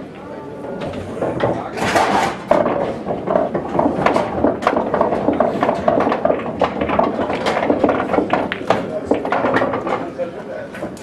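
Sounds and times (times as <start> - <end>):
murmur of voices: 0.0 - 2.0
pool balls clicking: 0.0 - 11.0.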